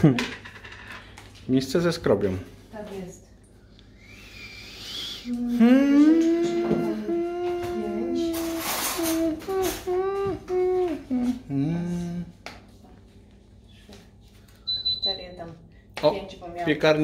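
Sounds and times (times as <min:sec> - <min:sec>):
person humming: 0:04.0 - 0:12.4.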